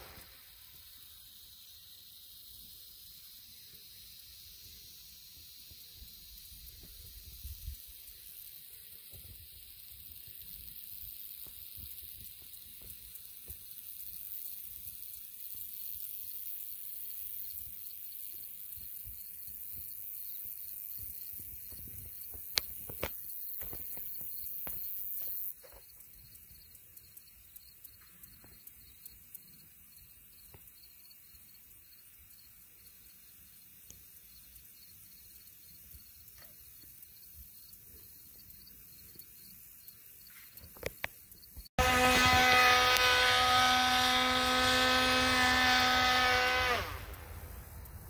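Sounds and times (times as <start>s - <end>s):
model plane engine whine: 41.8s - 48.0s.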